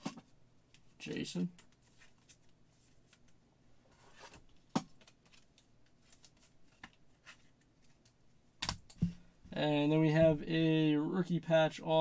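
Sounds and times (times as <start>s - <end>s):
trading cards rustling and clicking: 4.0s - 9.1s.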